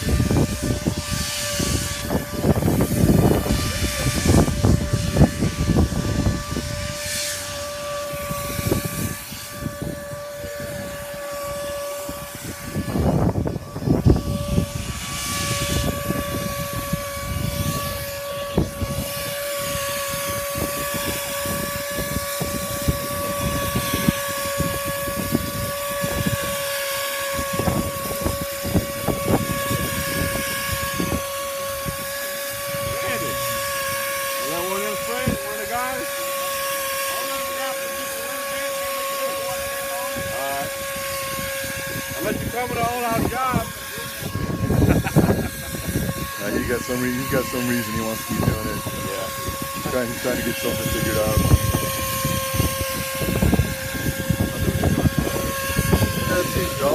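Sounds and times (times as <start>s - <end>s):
spray equipment whine: 0.0s - 56.9s
wind rumbling on microphone: 0.0s - 56.9s.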